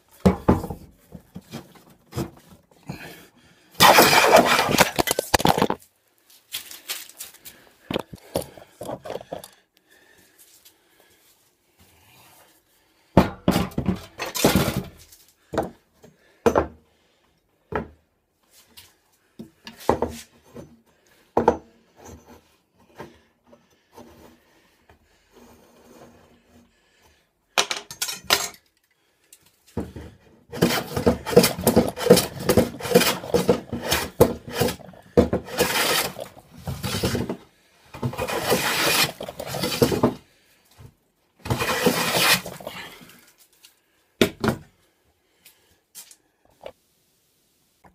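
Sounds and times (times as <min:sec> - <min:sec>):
rhythmic scraping on wood: 0:03.8 - 0:05.7, 0:29.8 - 0:40.3, 0:41.4 - 0:43.1.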